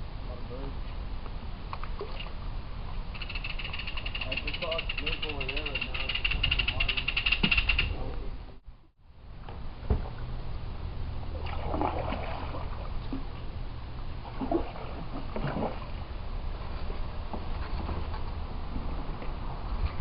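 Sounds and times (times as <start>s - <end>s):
steady low rumble: 4.8s - 20.0s
kayak paddles splashing in water: 11.3s - 13.3s, 14.2s - 18.2s.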